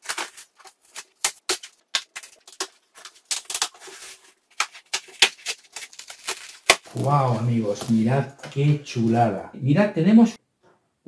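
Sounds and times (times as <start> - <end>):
packaging rustling: 0.0 - 8.8.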